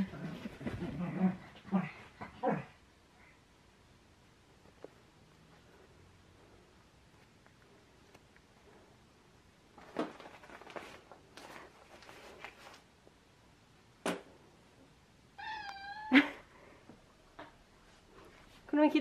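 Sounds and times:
cat meowing: 15.4 - 16.4.

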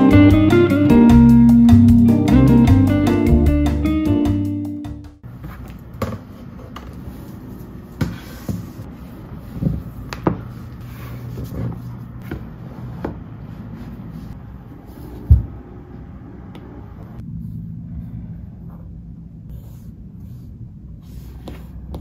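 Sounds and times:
guitar music: 0.0 - 5.2
steady low hum: 6.4 - 22.0.

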